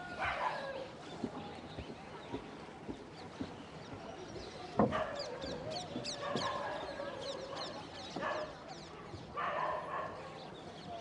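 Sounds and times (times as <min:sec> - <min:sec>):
birds chirping: 0:00.1 - 0:11.0.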